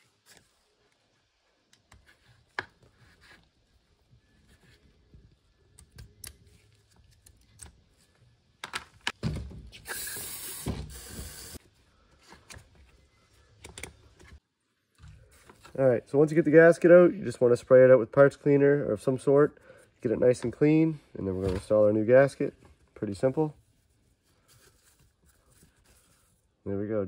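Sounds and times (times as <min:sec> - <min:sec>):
aerosol spray hiss: 0:09.9 - 0:11.6.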